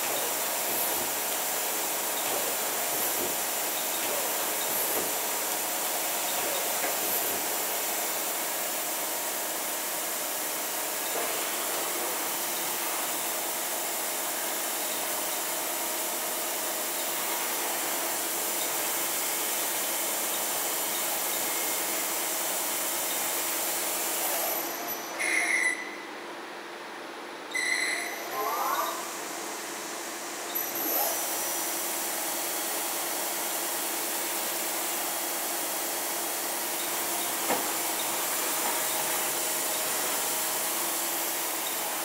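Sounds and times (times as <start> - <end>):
lathe running with whining tones: 28.1 - 42.0.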